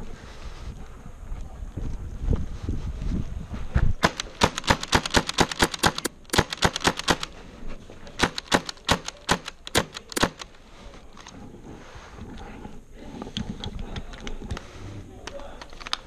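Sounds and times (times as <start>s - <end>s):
airsoft pistol rapid shots: 4.0s - 7.3s, 8.2s - 10.4s.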